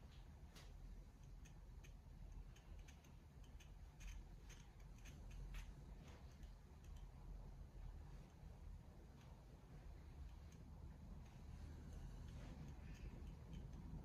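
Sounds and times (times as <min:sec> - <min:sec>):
faint small ticks: 0:00.1 - 0:07.4, 0:10.1 - 0:14.0.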